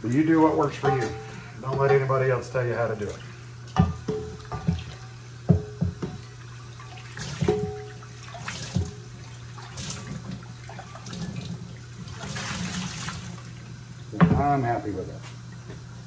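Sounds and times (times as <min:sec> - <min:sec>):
tap water running into skillet: 0:00.0 - 0:14.6
heavy pan knocking and ringing: 0:00.8 - 0:02.0.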